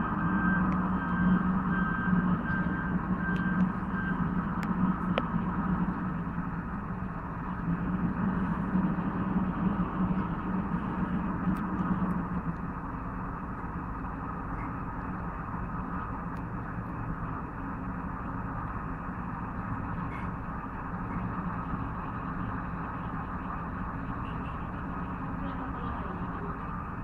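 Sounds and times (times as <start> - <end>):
reversing alarm beeping: 0.0 - 5.1
diesel engine running: 0.0 - 27.0.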